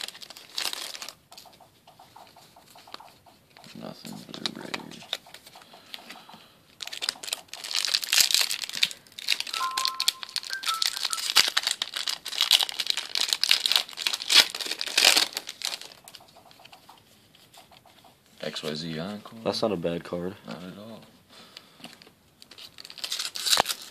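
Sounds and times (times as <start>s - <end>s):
foil wrapper crinkling: 0.0s - 1.2s, 6.8s - 16.1s, 22.4s - 23.9s.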